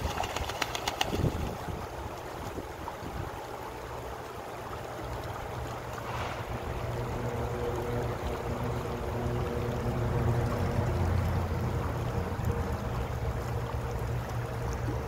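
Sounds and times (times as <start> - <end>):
wind on microphone: 0.0 - 3.4
ducks splashing in water: 0.0 - 4.2
flowing water: 0.0 - 15.0.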